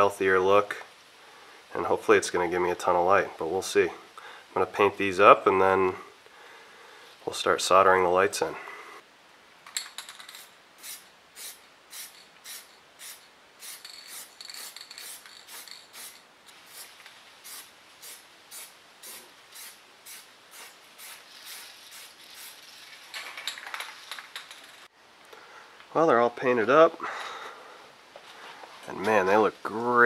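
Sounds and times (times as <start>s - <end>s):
spray paint can hissing: 10.3s - 23.1s.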